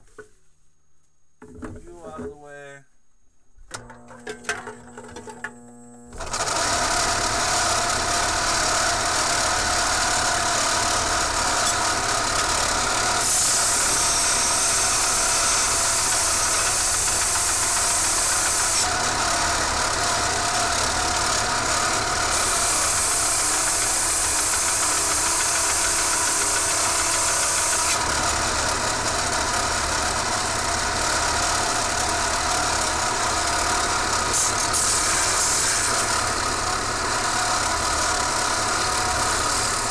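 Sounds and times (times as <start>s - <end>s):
belt sander grinding metal: 6.1s - 39.9s.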